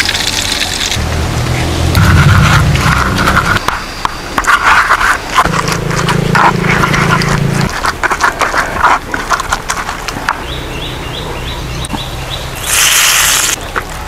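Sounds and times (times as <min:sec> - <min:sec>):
pestle crushing food in mortar: 0:02.0 - 0:10.3.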